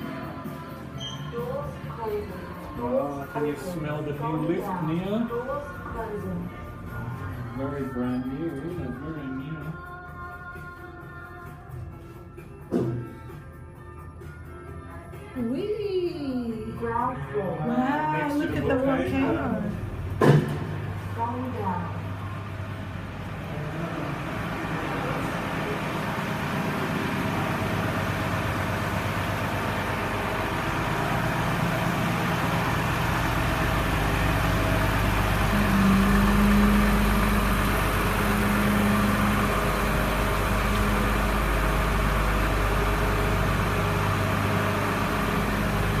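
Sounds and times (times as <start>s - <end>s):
low mechanical hum: 0.0s - 13.4s, 17.8s - 46.0s
deeper rumble: 19.7s - 46.0s.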